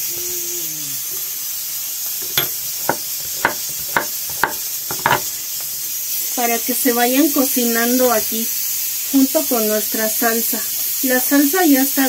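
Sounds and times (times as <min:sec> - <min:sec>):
steady hiss: 0:00.0 - 0:12.0
knife chopping on wooden board: 0:02.2 - 0:05.3.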